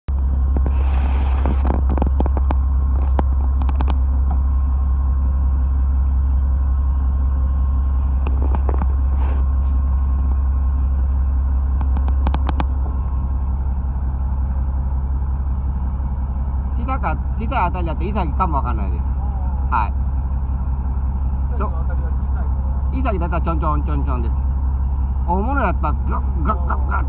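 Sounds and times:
boat engine droning: 0.1s - 27.0s
sharp clicks and knocks: 1.6s - 4.0s, 11.8s - 12.8s.

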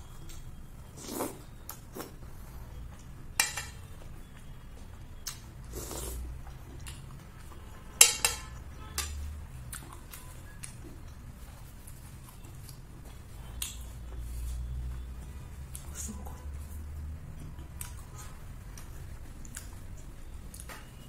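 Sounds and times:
soft eating sounds: 0.0s - 21.0s
metal spoon clinking on ceramic dish: 3.4s - 3.8s, 8.0s - 9.2s.

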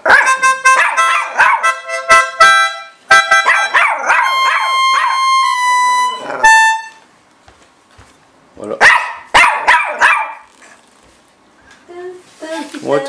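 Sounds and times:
electronic organ notes: 0.2s - 7.0s.

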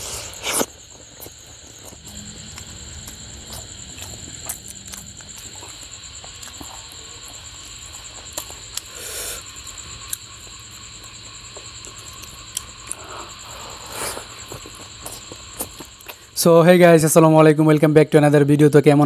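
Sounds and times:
mouth eating sounds: 0.0s - 10.3s, 11.6s - 16.4s
steady high-pitched trill: 1.3s - 8.8s.

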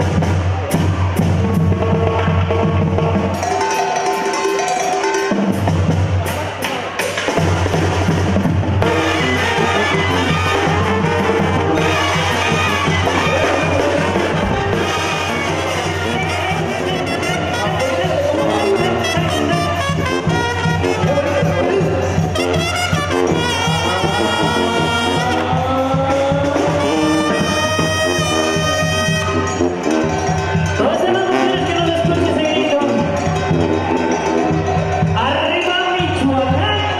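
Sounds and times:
brass band playing: 0.0s - 36.9s
tambora drum beat: 0.0s - 36.9s
trumpet long held notes: 8.8s - 29.9s.

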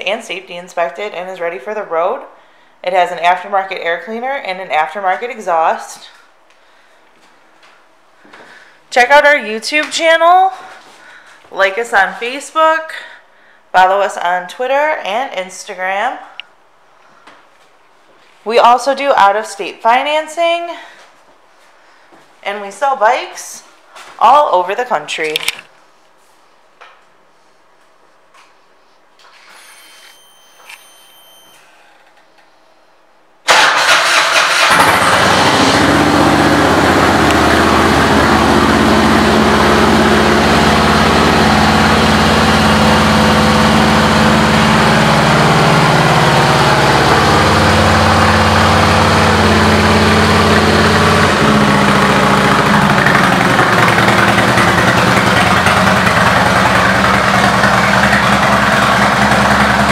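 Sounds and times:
motorcycle engine starting and idling: 33.4s - 59.9s.

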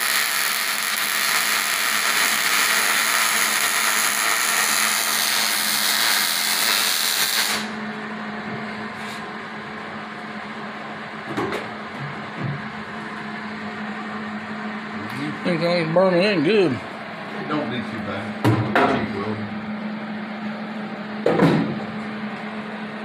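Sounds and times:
arc welding crackle and hiss: 0.0s - 7.8s
steady low hum: 5.8s - 23.0s.

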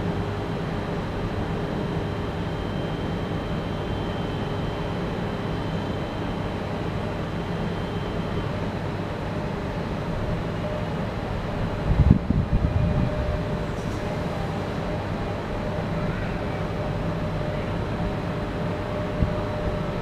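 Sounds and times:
electric train rumble and hum: 0.0s - 20.0s
faint high whine: 0.0s - 20.0s.

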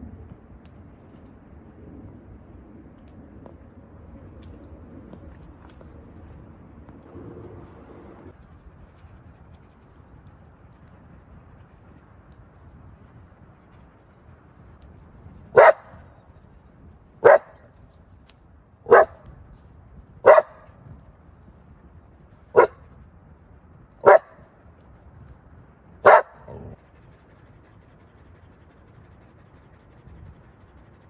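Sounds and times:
dog barking: 15.5s - 16.0s, 17.2s - 17.6s, 18.9s - 19.2s, 20.2s - 20.7s, 22.5s - 22.8s, 24.0s - 24.4s, 26.0s - 26.8s.

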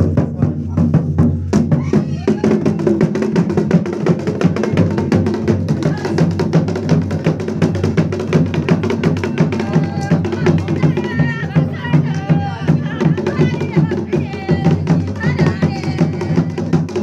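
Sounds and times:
fast dhol drumming: 0.0s - 17.0s.

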